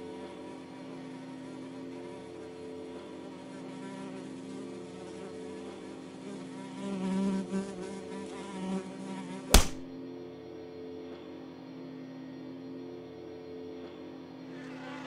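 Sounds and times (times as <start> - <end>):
fly buzzing: 0.0 - 9.9
sharp smack: 9.5 - 9.9.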